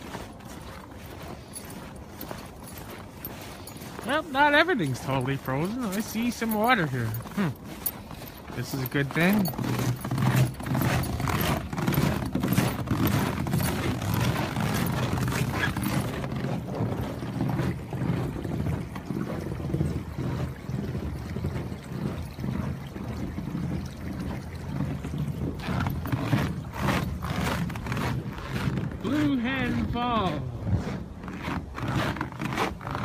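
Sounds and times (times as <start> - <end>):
footsteps in snow: 0.0 - 18.3, 25.6 - 33.0
creek water running: 0.0 - 33.0.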